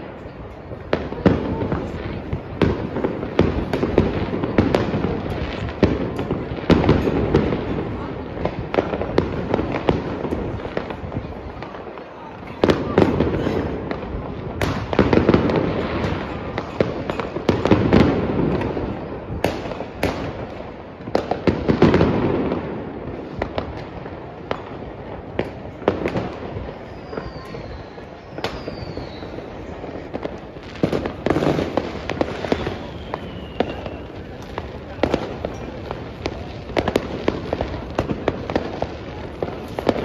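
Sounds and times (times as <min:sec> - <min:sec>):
fireworks bangs and crackles: 0:00.0 - 0:40.0
falling firework whistles: 0:26.5 - 0:37.0.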